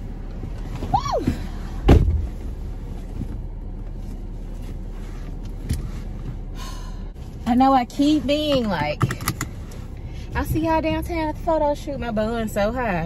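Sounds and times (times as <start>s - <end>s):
loud thump: 1.8s - 2.4s.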